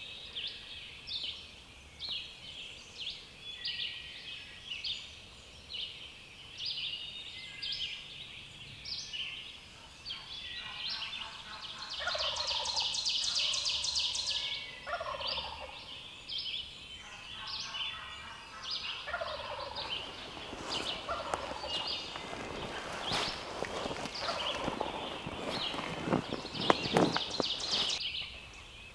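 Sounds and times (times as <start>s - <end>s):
small birds chirping: 0.0s - 28.9s
wild turkeys calling: 9.8s - 16.1s, 17.0s - 28.0s.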